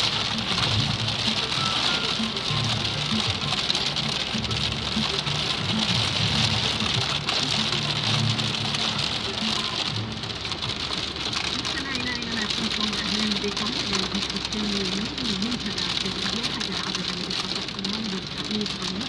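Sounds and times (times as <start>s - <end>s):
low music: 0.0s - 18.8s
heavy rain on car windshield: 0.0s - 19.0s.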